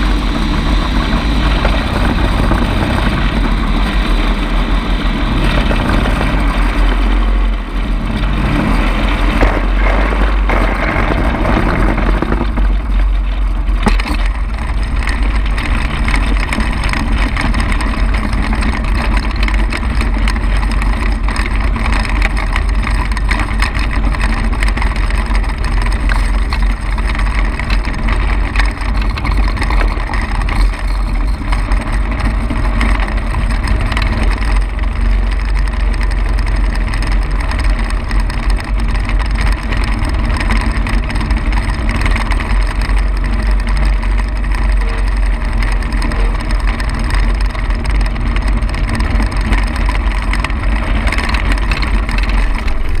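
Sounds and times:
small aircraft engine running: 0.0s - 53.0s.

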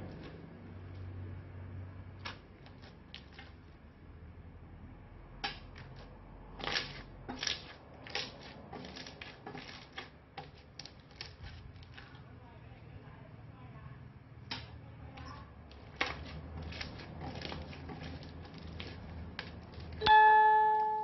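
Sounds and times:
slime crackling and popping: 6.6s - 12.2s.

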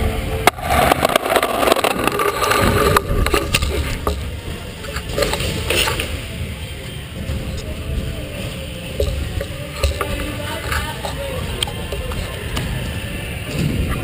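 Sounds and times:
clattering noise: 0.4s - 6.2s, 9.0s - 12.9s.

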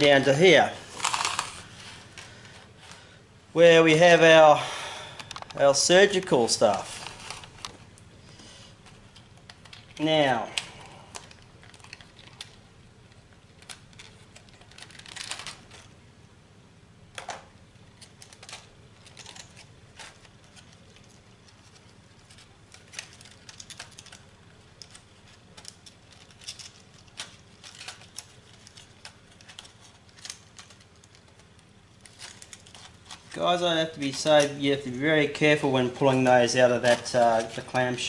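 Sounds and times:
plastic packaging rustling: 0.0s - 3.2s, 3.8s - 16.0s, 17.2s - 38.0s
plastic packaging clicking: 0.9s - 1.7s, 8.8s - 15.9s, 17.2s - 34.9s.

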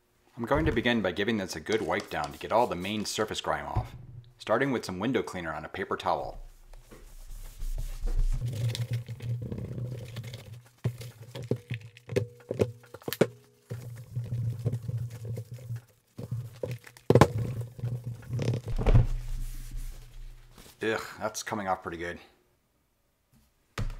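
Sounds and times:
paper towel scrubbing metal: 6.6s - 11.1s
paper crinkling: 6.8s - 12.1s.

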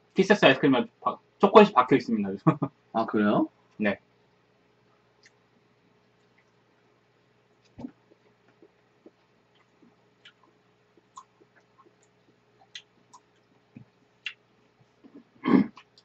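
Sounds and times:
eating smacks: 7.6s - 14.4s.

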